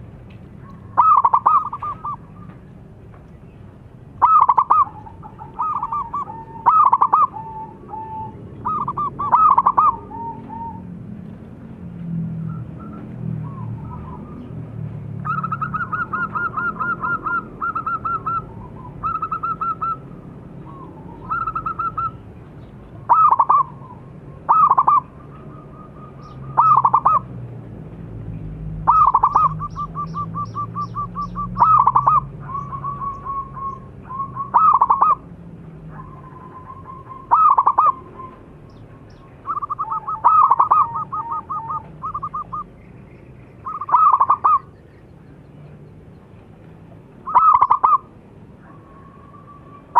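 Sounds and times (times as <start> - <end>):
dove cooing: 0.6 - 2.6, 4.2 - 10.9, 15.2 - 22.3, 23.0 - 27.3, 28.8 - 35.3, 35.9 - 42.7, 43.6 - 44.7, 47.2 - 49.9.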